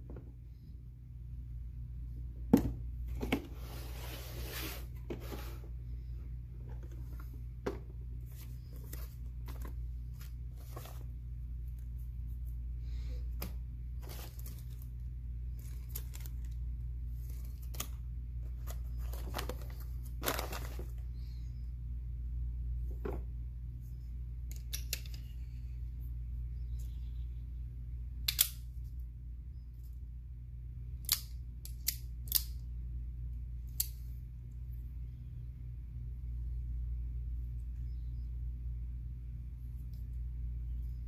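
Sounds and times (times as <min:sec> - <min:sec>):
steady low hum: 0:00.0 - 0:41.0
paper rustling and crinkling: 0:08.2 - 0:11.9, 0:14.0 - 0:21.0.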